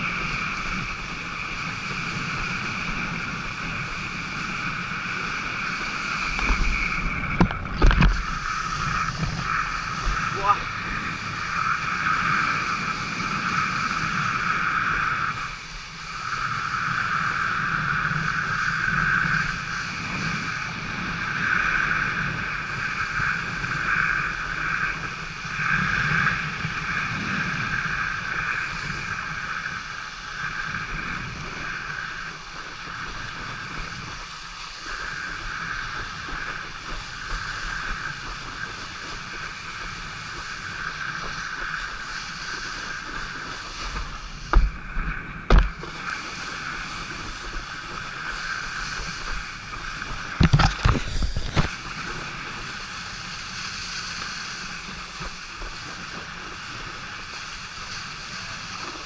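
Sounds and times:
rush of wind and water spray: 0.0s - 59.0s.

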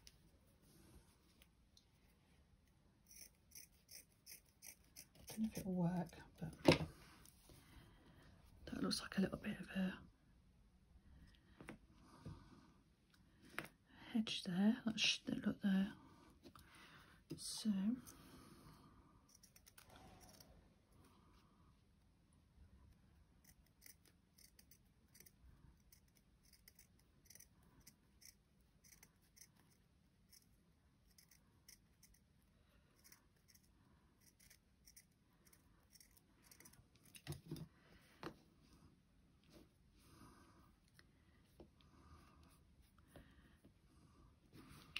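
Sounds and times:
scissors snipping fabric: 3.0s - 6.2s, 23.4s - 30.5s.

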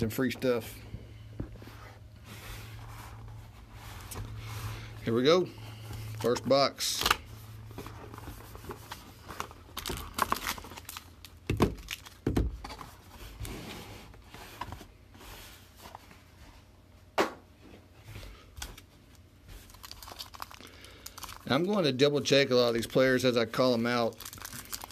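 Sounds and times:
cardboard rustling and scraping: 1.4s - 6.6s, 7.4s - 10.8s, 12.5s - 16.7s.

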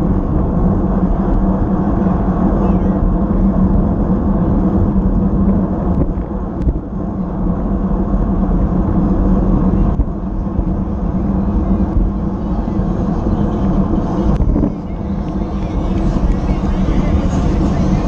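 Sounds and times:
tyre road noise: 0.0s - 18.0s
wind rushing over microphone: 0.0s - 18.0s.

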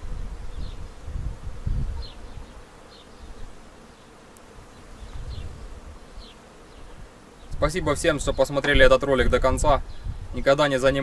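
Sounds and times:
wind rumble on microphone: 0.0s - 2.6s, 5.0s - 6.3s, 6.9s - 11.0s
bee buzzing: 0.0s - 11.0s.

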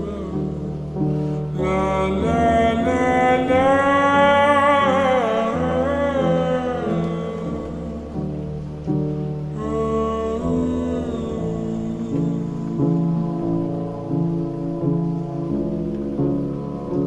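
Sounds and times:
person singing long wavering note: 0.0s - 8.6s, 9.5s - 14.0s
slowed reverb-heavy song: 0.0s - 17.0s.

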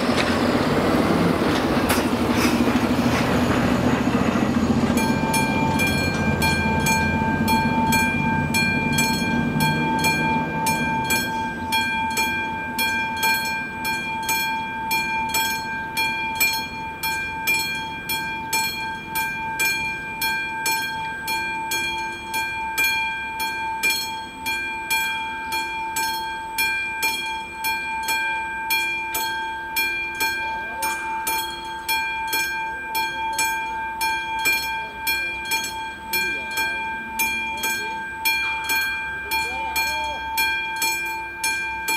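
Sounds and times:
low vehicle rumble: 0.0s - 20.0s
level crossing warning bell: 0.0s - 41.9s.

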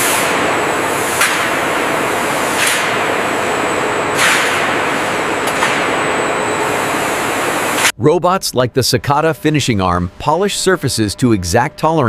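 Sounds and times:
faint high whine: 0.0s - 7.9s
hissing factory machine din: 0.0s - 7.9s.

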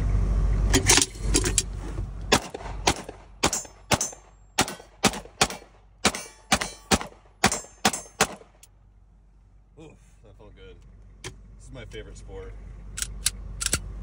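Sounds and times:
pistol shots from inside a car: 2.3s - 8.5s.

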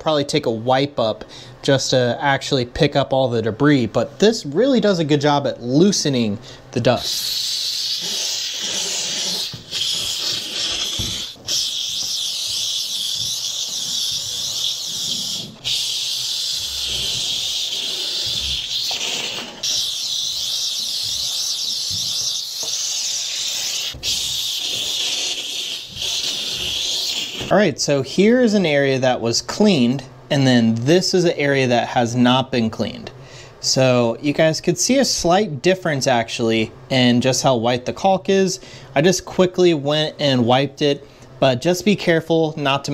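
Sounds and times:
steam cleaner hissing: 6.9s - 27.5s.

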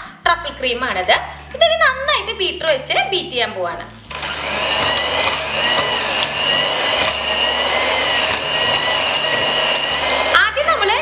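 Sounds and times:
electric hand mixer whirring: 3.9s - 11.0s.

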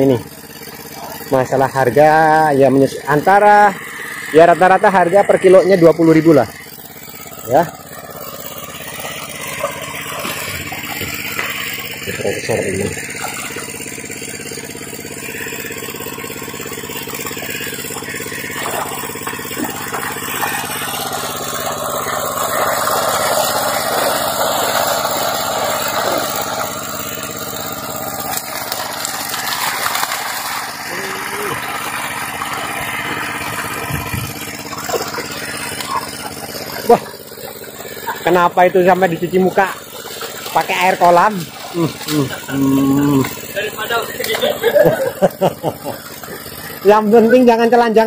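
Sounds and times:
small engine running: 0.0s - 48.0s
people talking: 1.3s - 3.8s, 4.4s - 6.6s, 7.5s - 7.7s, 12.0s - 13.0s, 30.9s - 31.6s, 38.1s - 39.8s, 40.5s - 46.0s, 46.8s - 48.0s.

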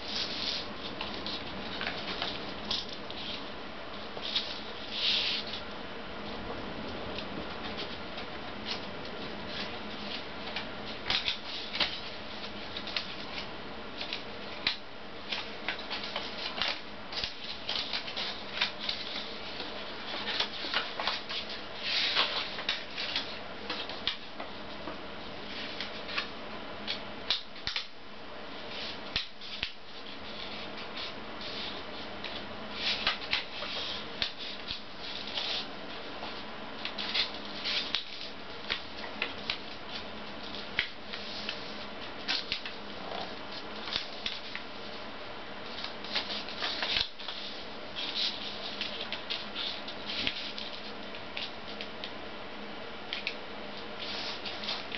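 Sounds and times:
paper crinkling and creasing: 0.0s - 3.4s, 8.6s - 24.3s, 28.7s - 45.0s, 45.7s - 51.8s, 54.0s - 54.9s
faint steady hum: 0.0s - 54.9s.

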